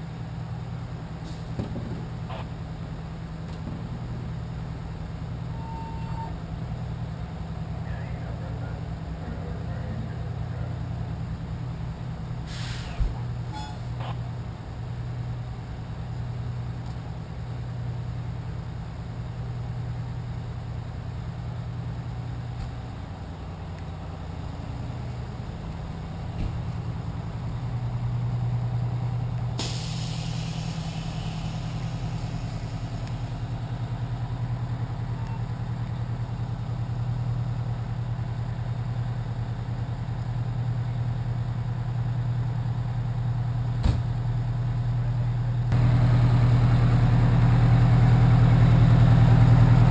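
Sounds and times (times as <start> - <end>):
diesel engines idling: 0.0 - 49.9
hiss: 12.5 - 13.2, 29.6 - 33.5.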